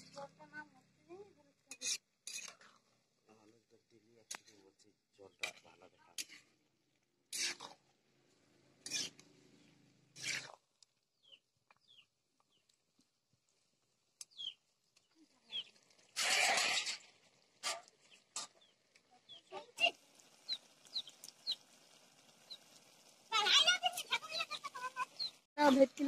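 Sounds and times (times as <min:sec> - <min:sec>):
chickens chirping: 0:20.4 - 0:21.6, 0:24.1 - 0:25.4.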